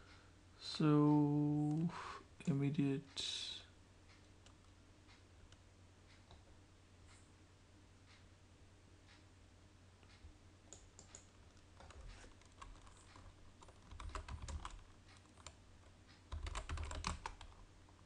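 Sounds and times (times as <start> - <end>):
keyboard typing: 10.7 - 17.7.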